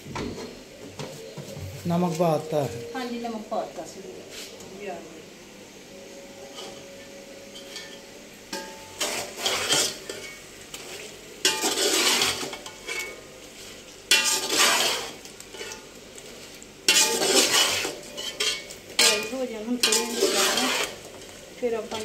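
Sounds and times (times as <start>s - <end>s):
metal spoon scraping a pot: 8.6s - 10.4s, 11.4s - 13.2s, 14.1s - 15.9s, 16.9s - 21.0s.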